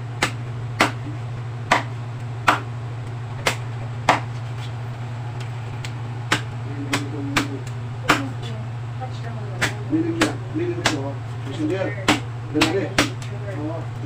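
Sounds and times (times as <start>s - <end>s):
steady low hum: 0.0s - 14.0s
cleaver chopping on wooden board: 0.2s - 1.0s, 1.7s - 2.7s, 3.4s - 4.3s, 6.3s - 8.3s, 9.6s - 11.1s, 12.0s - 13.3s.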